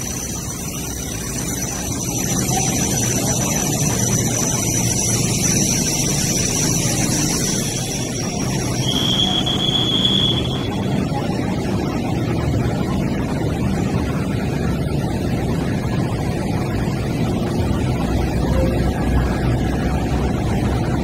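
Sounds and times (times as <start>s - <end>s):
light rail train rumbling past: 0.0s - 21.0s
thin high tone: 0.4s - 11.3s, 18.4s - 19.9s.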